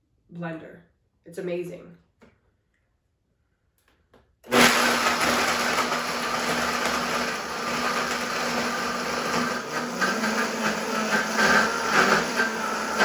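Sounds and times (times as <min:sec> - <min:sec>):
blender crushing ice: 0:04.4 - 0:13.0.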